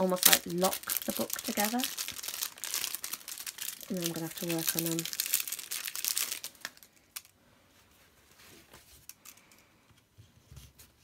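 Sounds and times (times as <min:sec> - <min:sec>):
packaging crinkling: 0:00.0 - 0:07.4.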